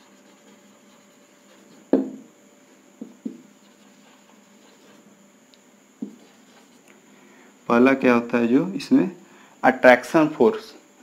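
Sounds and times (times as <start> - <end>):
marker writing on whiteboard: 0.0 - 2.1, 3.0 - 5.0, 6.0 - 6.8
marker knocking on board: 1.9 - 2.3, 3.0 - 3.5, 6.0 - 6.4.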